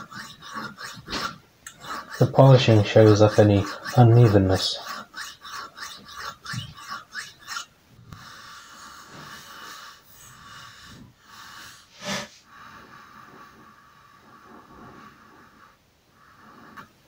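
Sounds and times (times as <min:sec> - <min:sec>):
file rasping on metal: 0:00.0 - 0:07.8.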